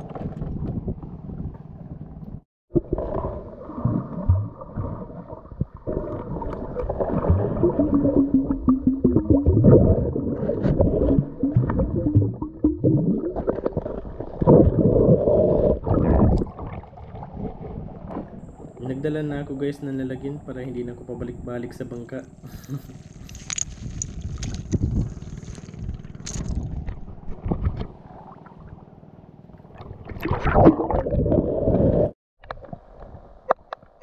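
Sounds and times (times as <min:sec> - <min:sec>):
water churning and gurgling: 0:02.7 - 0:33.7
faint steady hum: 0:17.8 - 0:30.0.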